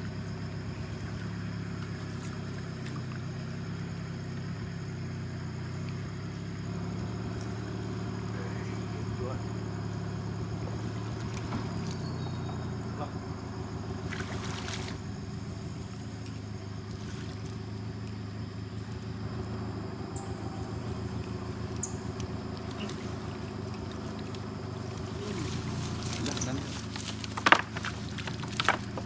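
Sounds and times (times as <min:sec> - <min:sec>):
boat engine idling: 0:00.0 - 0:29.0
water splashing and dripping: 0:13.9 - 0:15.2, 0:20.9 - 0:29.0.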